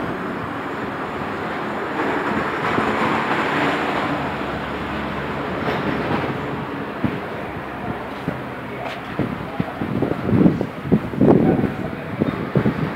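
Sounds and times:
street traffic: 0:00.0 - 0:12.9
vehicle passing: 0:00.0 - 0:12.9.

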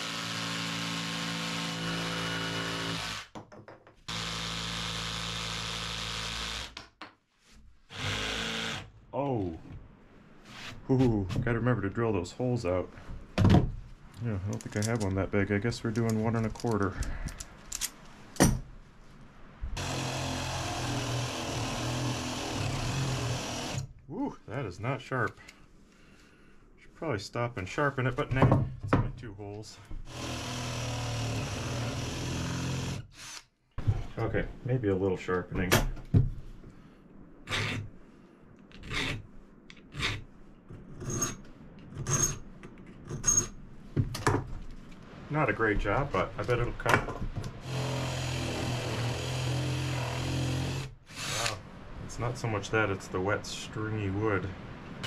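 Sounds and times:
cordless drill boring into wood: 0:00.0 - 0:03.3, 0:04.1 - 0:06.8, 0:07.9 - 0:08.9, 0:19.8 - 0:23.9, 0:30.0 - 0:33.5, 0:47.6 - 0:51.6.

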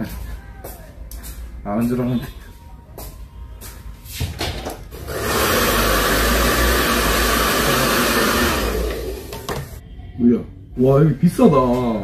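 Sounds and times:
hair dryer blowing: 0:05.0 - 0:09.8.

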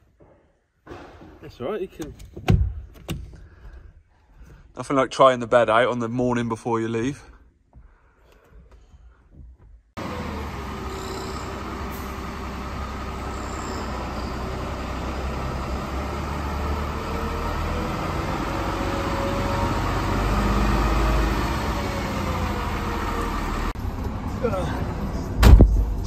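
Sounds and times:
truck diesel engine rumbling: 0:10.0 - 0:26.0.

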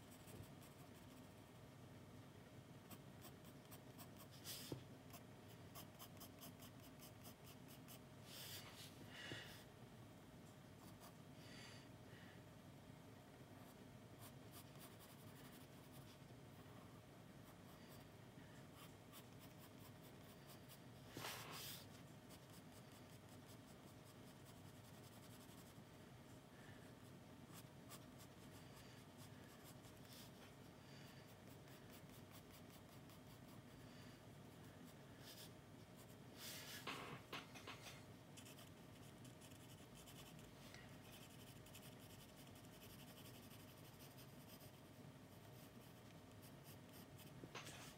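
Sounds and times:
pencil scratching on paper: 0:02.9 - 0:08.0, 0:13.6 - 0:16.2, 0:18.8 - 0:25.8, 0:31.4 - 0:33.6, 0:38.4 - 0:40.5, 0:41.1 - 0:47.9.

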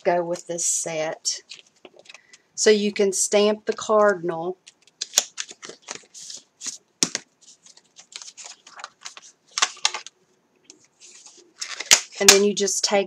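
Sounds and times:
packaging rustling: 0:04.6 - 0:10.2, 0:10.8 - 0:12.4.

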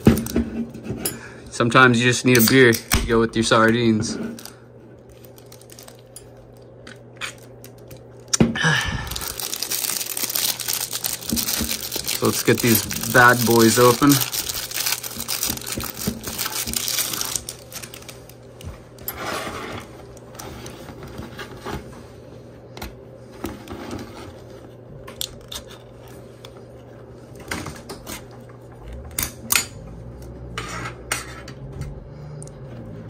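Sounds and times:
packaging wrapper crinkling: 0:04.4 - 0:08.4, 0:09.0 - 0:18.6.

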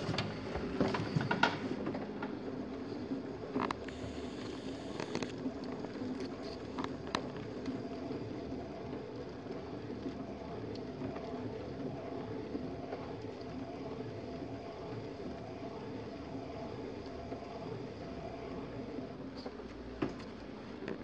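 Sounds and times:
potter's wheel humming: 0:00.0 - 0:21.0.

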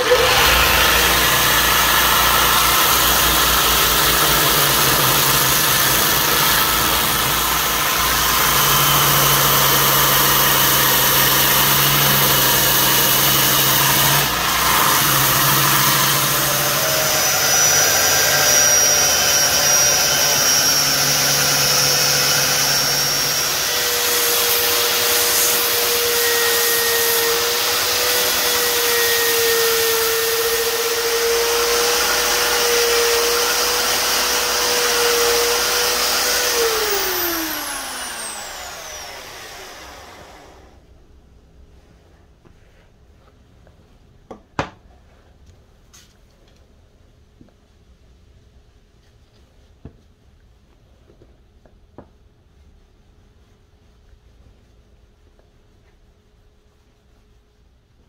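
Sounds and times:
wood grinding against sanding belt: 0:00.0 - 0:40.4
belt sander running: 0:00.0 - 0:40.8.

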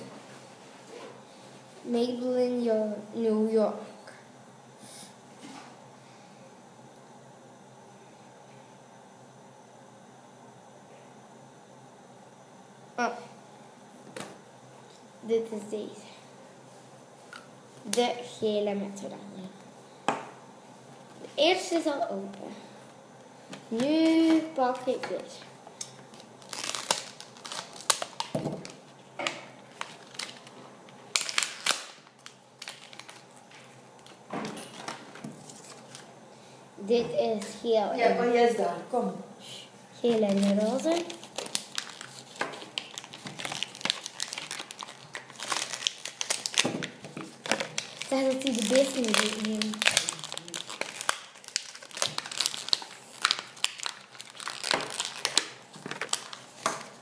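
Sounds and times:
plastic blister pack crackling: 0:23.7 - 0:36.1, 0:40.0 - 0:57.0.

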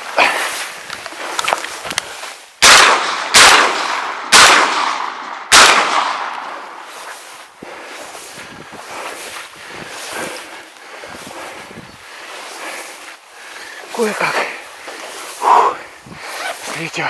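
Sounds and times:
shotgun shots: 0:02.6 - 0:06.8.

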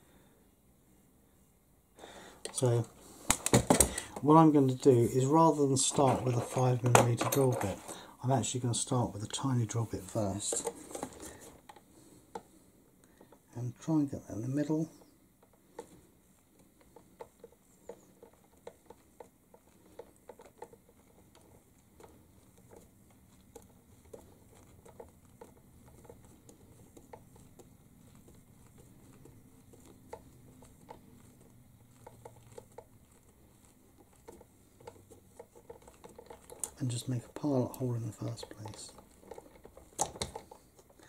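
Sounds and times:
hand drill scratching plastic: 0:14.6 - 0:41.0.

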